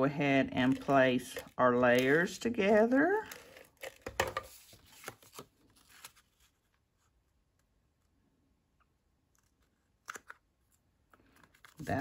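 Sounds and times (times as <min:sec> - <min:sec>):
cardstock rustling: 0:00.5 - 0:07.0, 0:09.4 - 0:12.0.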